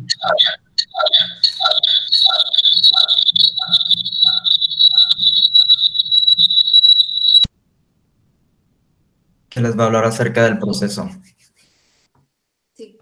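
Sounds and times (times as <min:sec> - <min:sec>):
high-pitched feedback squeal: 0:00.0 - 0:07.5
pulsing chirp: 0:00.0 - 0:07.5.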